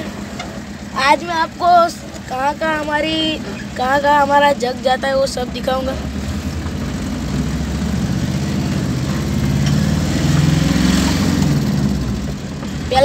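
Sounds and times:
vehicle engine revving: 0.0 - 13.0.

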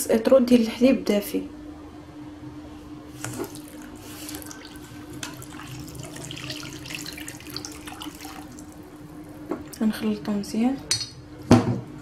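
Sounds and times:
milk pouring into metal bowl: 3.1 - 9.8.

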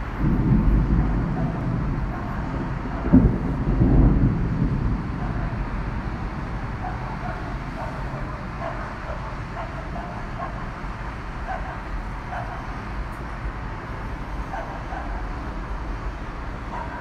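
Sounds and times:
low rumble of city noise: 0.0 - 17.0
dog barking: 1.0 - 2.4, 5.2 - 5.6, 6.8 - 10.8, 11.4 - 12.7, 14.5 - 15.4, 16.7 - 17.0.

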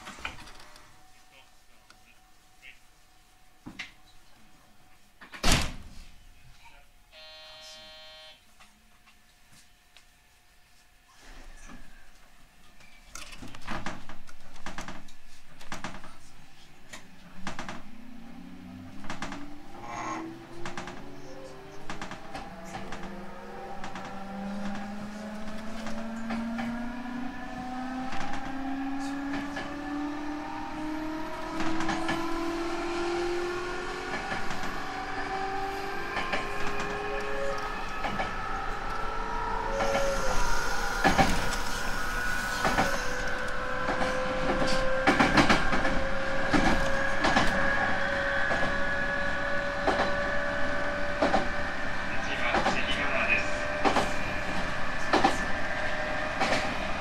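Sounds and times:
rail-joint clacks: 20.6 - 21.1, 36.1 - 38.4, 42.6 - 47.9, 49.8 - 50.2, 51.2 - 51.5, 52.2 - 55.5, 56.4 - 56.8
train motors whining: 33.8 - 57.0.

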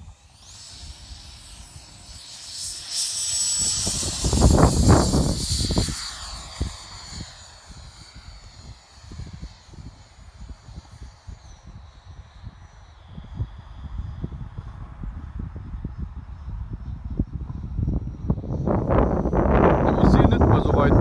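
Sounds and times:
electric ducted fan whine: 0.0 - 21.0
wind rumbling on microphone: 0.0 - 21.0.

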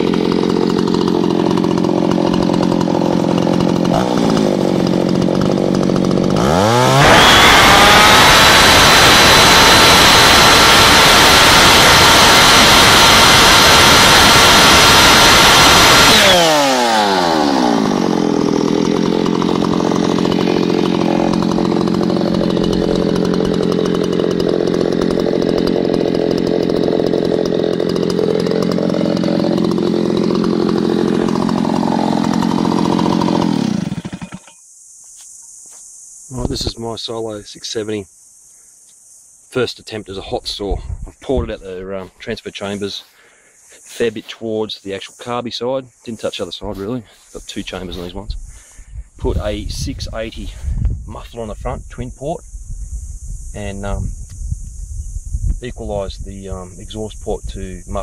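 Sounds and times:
chainsaw idling and revving: 0.0 - 34.6.

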